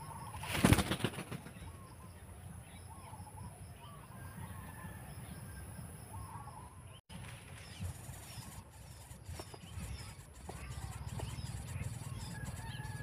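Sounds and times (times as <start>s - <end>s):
high insect hum: 7.6s - 13.0s
wavering bird calls: 7.6s - 13.0s.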